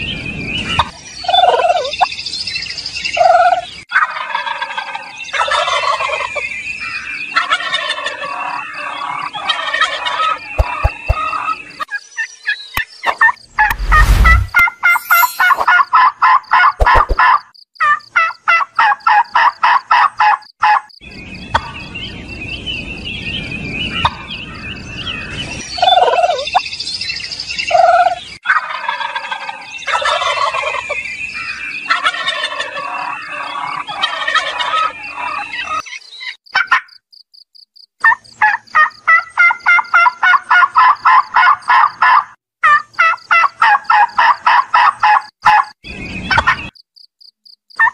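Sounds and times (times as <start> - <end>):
turkeys gobbling: 3.2 - 6.3, 7.4 - 11.5, 27.7 - 30.9, 31.9 - 35.8, 38.0 - 45.6
soft turkey calls: 9.4 - 11.5.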